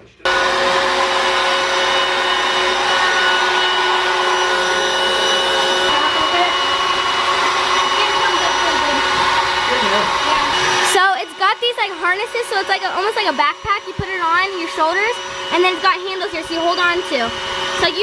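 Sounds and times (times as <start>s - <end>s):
electric blower whining: 0.2s - 18.0s.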